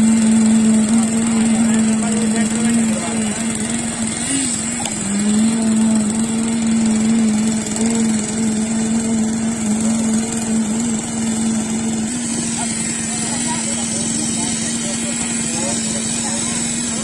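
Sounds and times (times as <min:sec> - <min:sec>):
small engine running steadily: 0:00.0 - 0:17.0.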